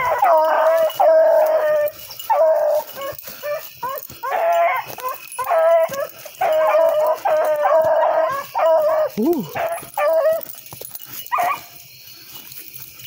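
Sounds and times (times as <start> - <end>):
dogs yipping and barking: 0.0 - 13.0
hounds baying: 0.0 - 13.0.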